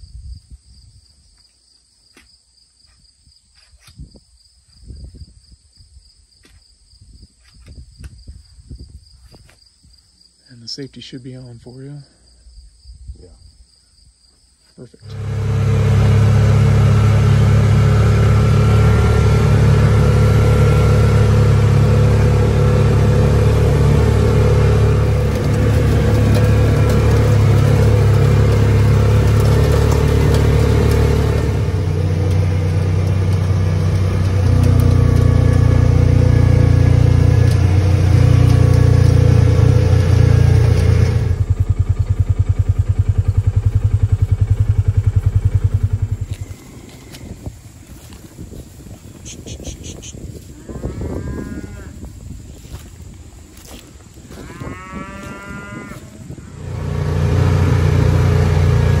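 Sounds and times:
utility vehicle engine running: 15.0 - 47.2, 56.5 - 59.0.

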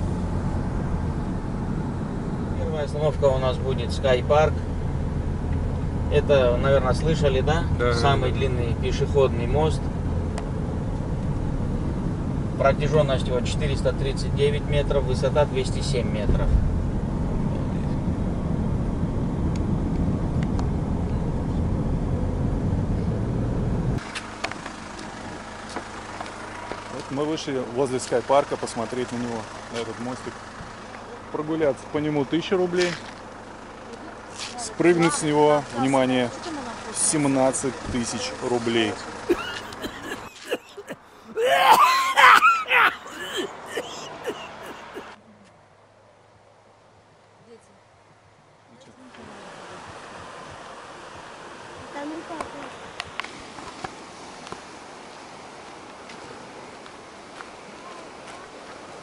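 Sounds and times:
car road and engine rumble: 0.0 - 59.0
loud wavering cry: 39.3 - 45.1
people laughing and exclaiming: 39.3 - 45.1.

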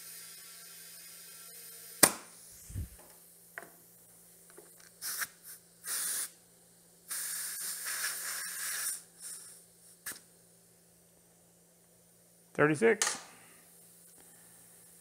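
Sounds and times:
compressed air hissing: 2.4 - 3.1, 5.0 - 6.4, 7.0 - 10.3.

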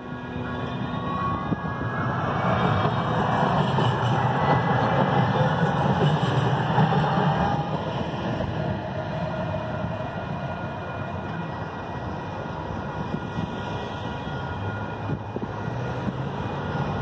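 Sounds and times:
road traffic noise: 0.0 - 17.0
wind rumbling on microphone: 0.8 - 3.6, 14.9 - 17.0.

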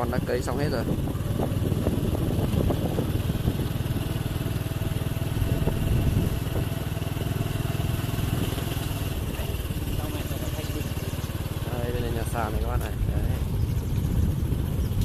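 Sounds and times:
small motorcycle engine running: 0.0 - 15.0.

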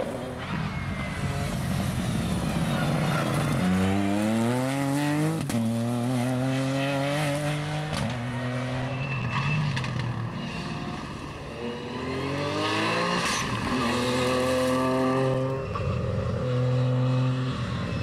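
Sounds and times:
rally car engine accelerating: 2.5 - 9.0.

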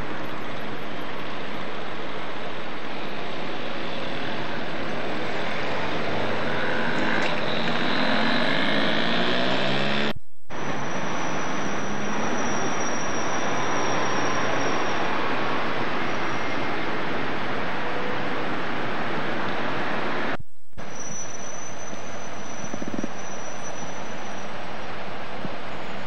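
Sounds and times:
street traffic: 0.0 - 26.0
vehicle passing: 5.0 - 10.1.

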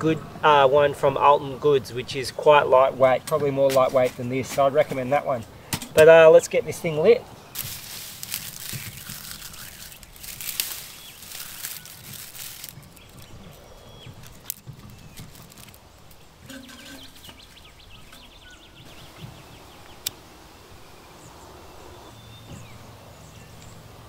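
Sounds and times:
birds chirping: 0.0 - 24.0
twigs rustling and snapping: 7.5 - 18.3.

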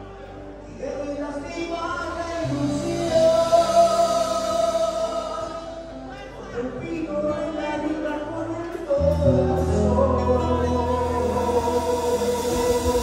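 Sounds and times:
band music playing: 0.0 - 13.0
deep bass line: 0.0 - 13.0.

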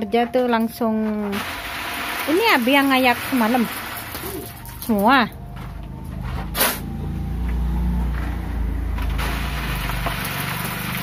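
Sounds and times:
engine humming: 0.0 - 11.0
sand crashing onto sieve: 1.2 - 4.8, 9.2 - 11.0.

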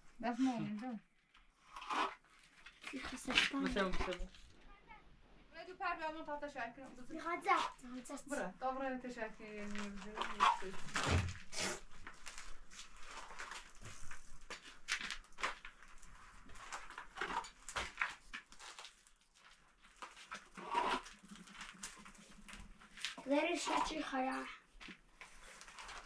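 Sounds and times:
scraping noises: 9.4 - 14.6, 20.3 - 24.6.

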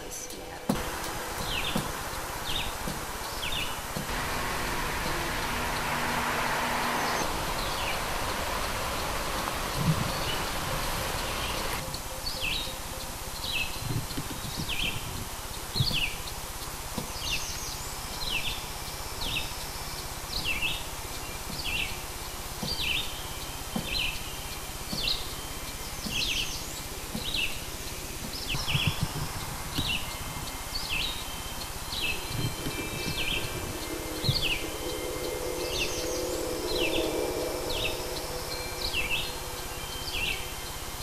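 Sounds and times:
soft nature ambience: 0.0 - 41.0
bird chirps: 0.3 - 41.0
chime ringing: 29.2 - 41.0
soft low drum beats: 32.1 - 41.0.

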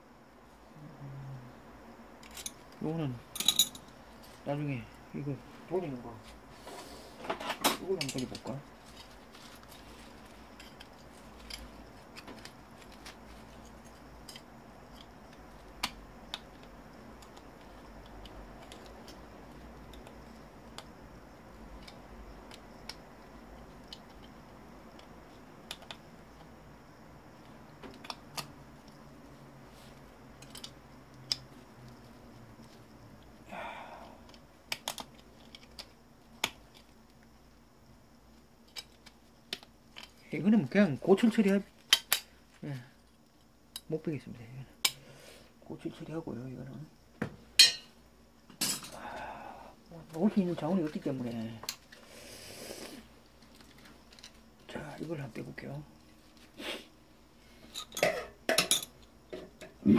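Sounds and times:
faint low hum: 0.0 - 59.9
hand tool clicking on metal and plastic: 34.2 - 36.9.

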